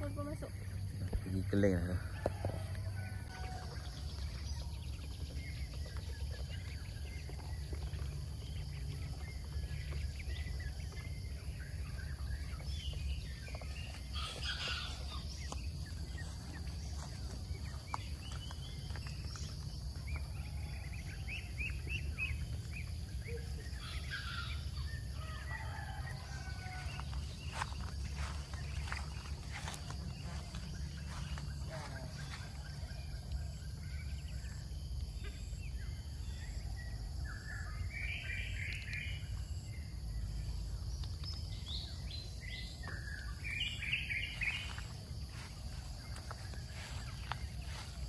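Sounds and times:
ducklings peeping: 2.6s - 37.0s.

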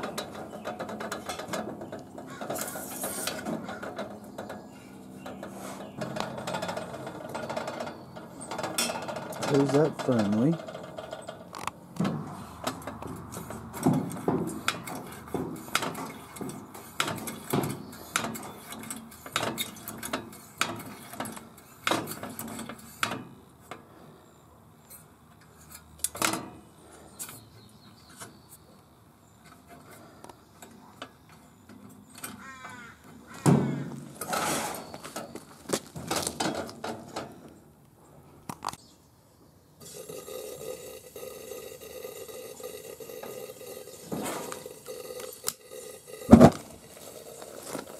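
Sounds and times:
pump plunger strokes: 2.2s - 4.3s, 12.3s - 23.3s, 39.8s - 47.9s
steady gas hiss: 39.8s - 47.7s.

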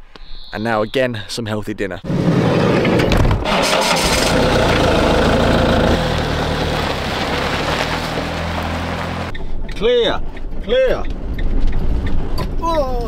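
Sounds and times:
van engine starting and running: 2.1s - 9.4s
tyres on gravel: 2.3s - 9.3s.

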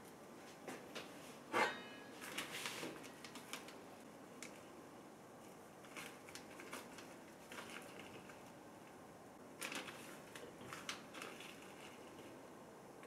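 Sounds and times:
plastic bag crinkling: 5.8s - 8.6s, 9.5s - 12.4s.

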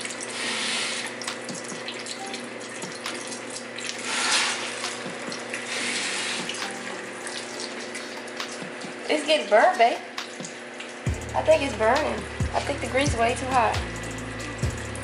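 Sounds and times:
chicken deep-frying in oil: 0.0s - 13.7s.

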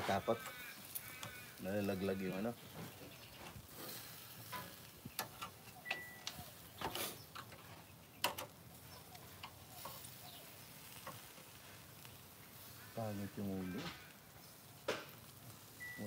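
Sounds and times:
meat sizzling on grill: 0.0s - 16.0s
metal tongs clicking on grill: 3.9s - 11.6s.

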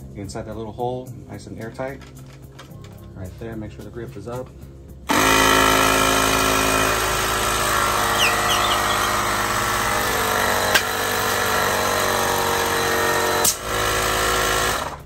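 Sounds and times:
air compressor running: 5.1s - 15.0s.

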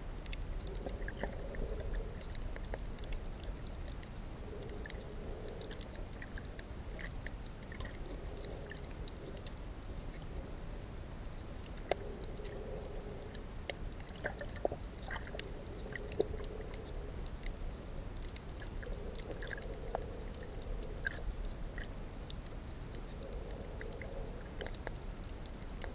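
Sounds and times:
faint hum: 0.0s - 25.9s
low steady rumble: 0.0s - 25.9s
sharp clicks and crackles: 0.2s - 25.9s.

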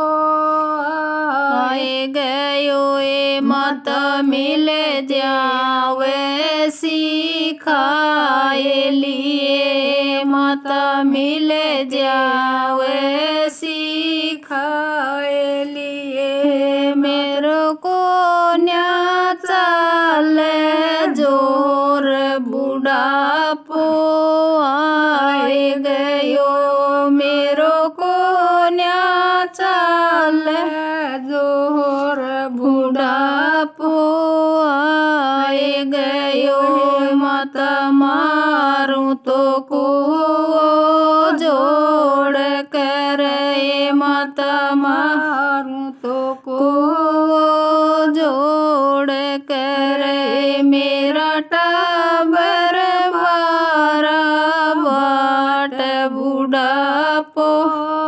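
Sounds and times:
woman singing a chant-like melody: 0.0s - 58.0s.

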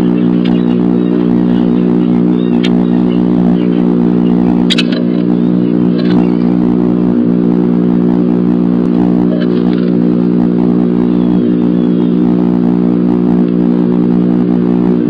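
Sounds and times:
loud electrical hum: 0.0s - 15.0s.

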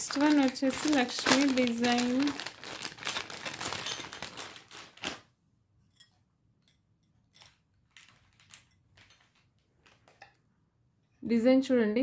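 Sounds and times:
jewellery and packaging clicking: 0.0s - 5.2s, 7.3s - 10.4s
plastic bag crinkling: 0.0s - 5.3s, 7.8s - 10.1s.

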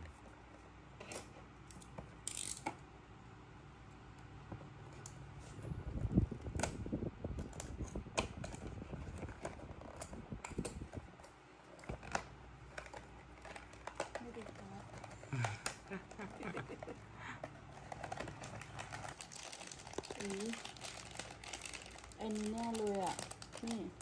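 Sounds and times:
plastic wrap rustling: 7.6s - 24.0s.

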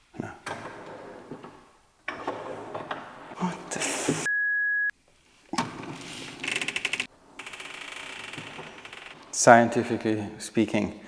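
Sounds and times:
knocks and rattles of bin mechanism: 0.4s - 3.4s
censor bleep tone: 4.3s - 4.9s.

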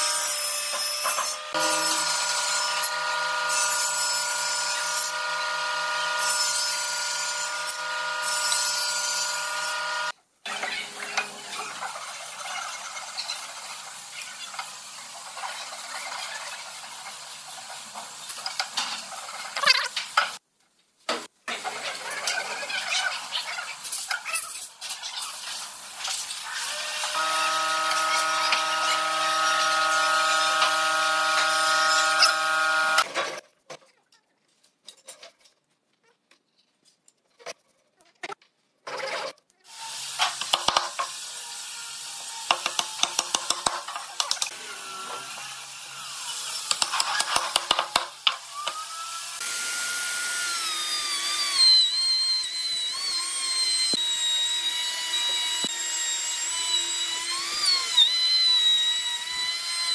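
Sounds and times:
router whining: 6.8s - 11.6s, 26.6s - 33.1s, 48.4s - 59.9s
wood being sawn: 26.5s - 33.1s, 48.6s - 59.9s.

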